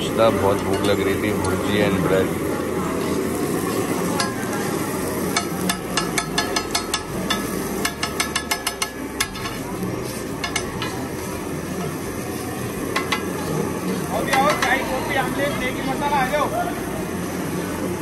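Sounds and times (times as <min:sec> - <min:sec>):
steady background noise: 0:00.0 - 0:18.0
metal spatula tapping on iron pan: 0:04.2 - 0:04.6, 0:05.3 - 0:09.6, 0:10.4 - 0:11.0, 0:12.9 - 0:13.4, 0:14.3 - 0:14.8.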